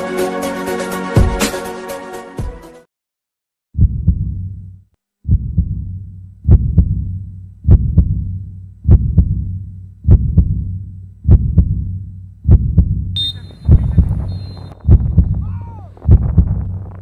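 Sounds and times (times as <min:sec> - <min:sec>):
heartbeat double thump: 0:03.8 - 0:04.6, 0:05.2 - 0:17.0.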